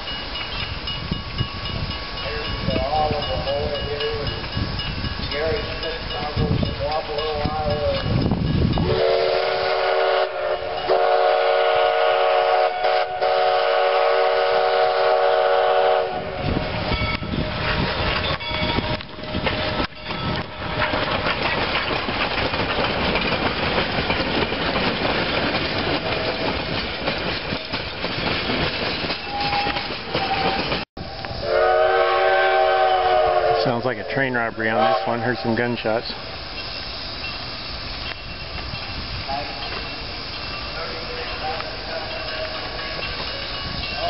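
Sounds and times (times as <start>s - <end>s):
train wheels clattering on rails: 0.0s - 13.0s, 14.8s - 31.4s, 35.3s - 44.0s
steam locomotive whistle: 8.8s - 17.1s, 29.3s - 35.7s.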